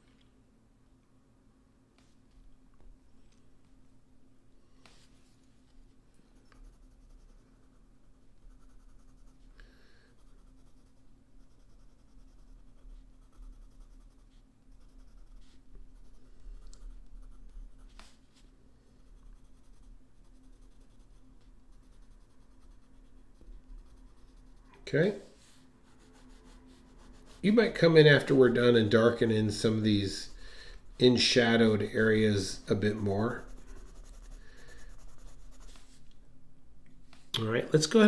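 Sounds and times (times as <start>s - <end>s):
pencil scratching on paper: 6.3s - 9.5s, 10.1s - 18.2s, 19.0s - 24.8s, 25.4s - 36.0s
pencil ticks: 16.6s - 17.1s.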